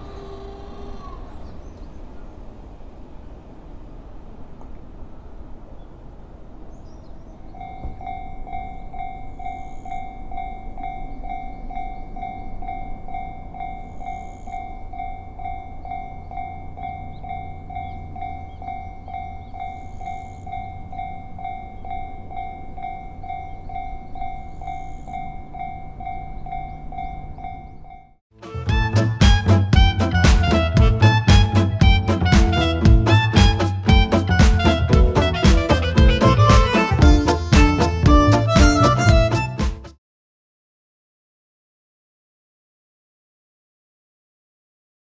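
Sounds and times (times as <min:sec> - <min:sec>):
railroad crossing bell ringing: 0:07.5 - 0:28.2.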